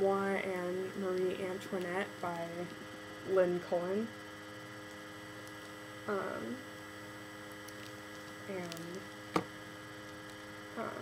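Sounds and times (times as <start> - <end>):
electrical hum: 0.0 - 11.0
woman murmuring: 6.1 - 6.6, 10.8 - 11.0.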